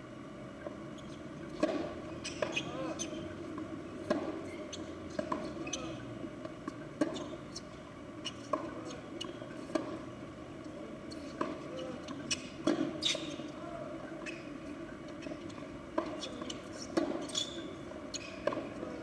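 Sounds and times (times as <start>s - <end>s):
tennis ball racket strikes and bounces: 1.6s - 2.6s, 4.0s - 4.5s, 18.2s - 19.0s.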